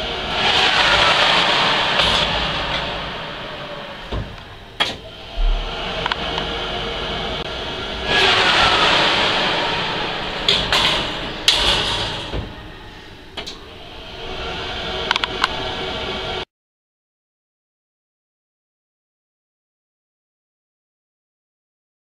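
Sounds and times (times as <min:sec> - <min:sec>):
oven fan running: 0:00.0 - 0:16.4
oven door opening: 0:00.8 - 0:06.5, 0:09.4 - 0:13.6.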